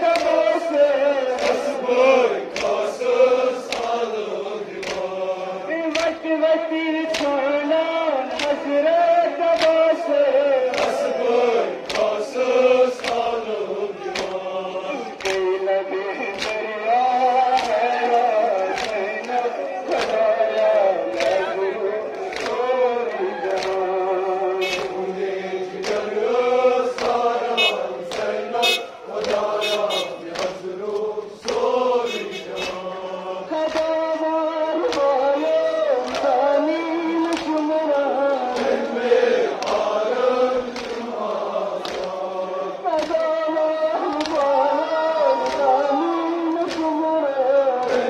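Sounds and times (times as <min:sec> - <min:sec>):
men chanting: 0:00.0 - 0:48.0
hands slapping on chests: 0:00.1 - 0:00.4, 0:01.4 - 0:01.8, 0:02.5 - 0:02.9, 0:03.6 - 0:04.1, 0:04.7 - 0:05.1, 0:05.9 - 0:06.2, 0:07.0 - 0:07.4, 0:08.2 - 0:08.7, 0:09.5 - 0:09.9, 0:10.6 - 0:11.1, 0:11.8 - 0:12.2, 0:12.9 - 0:13.4, 0:14.1 - 0:14.4, 0:15.1 - 0:15.5, 0:16.2 - 0:16.7, 0:17.4 - 0:21.4, 0:22.1 - 0:22.7, 0:23.5 - 0:23.9, 0:24.7 - 0:26.2, 0:26.9 - 0:34.0, 0:34.8 - 0:36.4, 0:37.2 - 0:37.7, 0:38.4 - 0:38.9, 0:39.5 - 0:42.2, 0:44.0 - 0:44.6, 0:45.3 - 0:45.8, 0:46.4 - 0:47.0.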